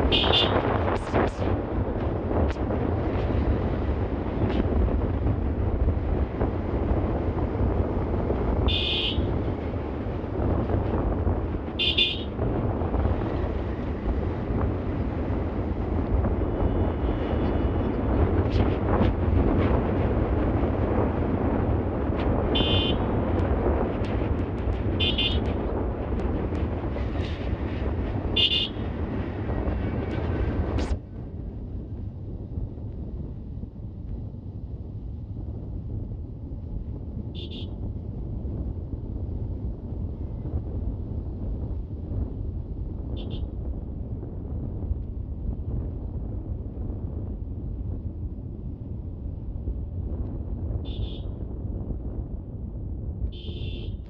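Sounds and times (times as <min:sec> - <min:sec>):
wind rumble on microphone: 0:00.0 - 0:54.0
motorcycle horn beeps: 0:00.1 - 0:00.6, 0:08.7 - 0:09.3, 0:11.8 - 0:12.3, 0:22.6 - 0:23.0, 0:25.0 - 0:25.4, 0:28.4 - 0:28.8, 0:37.4 - 0:37.8, 0:50.9 - 0:51.3, 0:53.3 - 0:54.0
short horn beeps: 0:00.1 - 0:00.6, 0:08.7 - 0:09.2, 0:50.9 - 0:51.3, 0:53.3 - 0:54.0.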